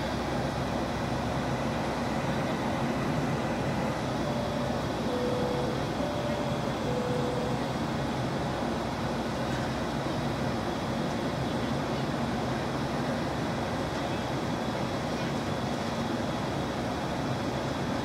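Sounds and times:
jet airliner cabin roar: 0:00.0 - 0:18.0
faint two-pitch tone: 0:03.8 - 0:08.3.

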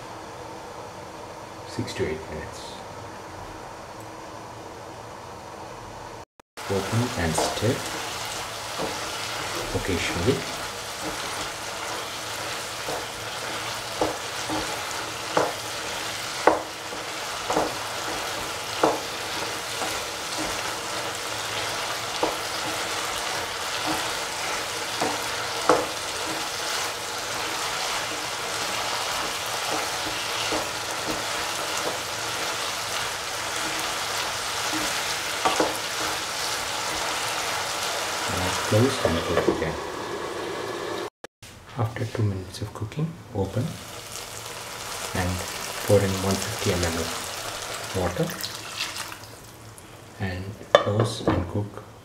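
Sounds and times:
food sizzling in a frying pan: 0:06.6 - 0:41.1, 0:43.6 - 0:50.3.

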